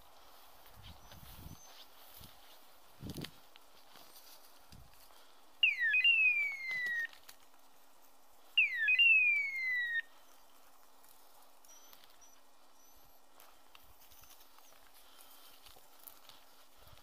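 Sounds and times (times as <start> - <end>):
raptor-like screeching call: 5.6 - 7.1, 8.6 - 10.1.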